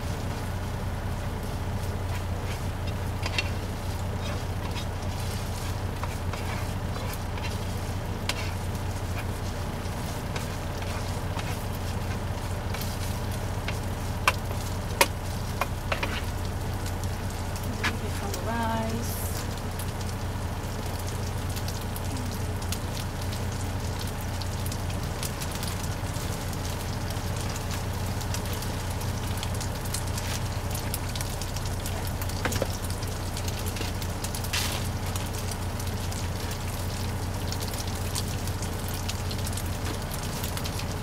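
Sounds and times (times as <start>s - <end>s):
sausage sizzling in a pan: 0.0s - 41.0s
steady low hum: 0.0s - 41.0s.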